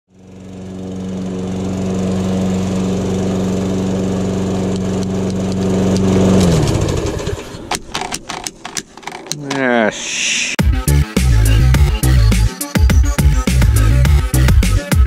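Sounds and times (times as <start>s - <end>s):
lawn mower engine running: 0.1s - 9.4s.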